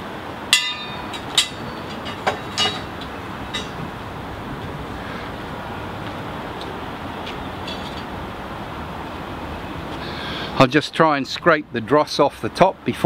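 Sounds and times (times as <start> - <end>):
steady rushing noise: 0.0 - 10.8
metal-on-metal clinks: 0.5 - 3.8.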